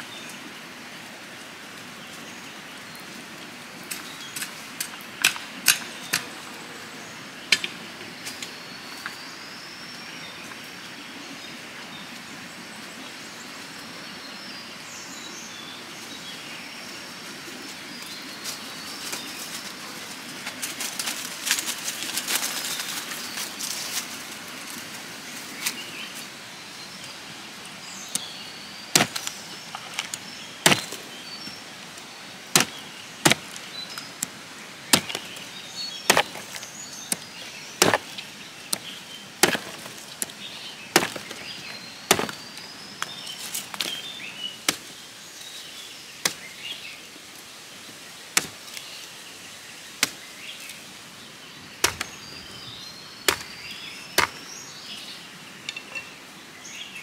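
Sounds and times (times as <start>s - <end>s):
birds chirping: 1.7s - 57.0s
knife chopping plant stem on log: 28.9s - 31.0s, 32.5s - 33.6s, 34.2s - 35.4s, 36.1s - 42.4s, 48.4s - 48.6s, 51.8s - 52.2s, 53.3s - 54.5s.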